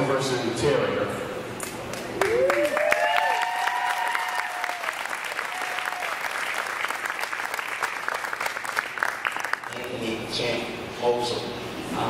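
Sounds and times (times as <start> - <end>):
audience clapping: 1.6 - 10.1
person whooping: 2.2 - 6.3.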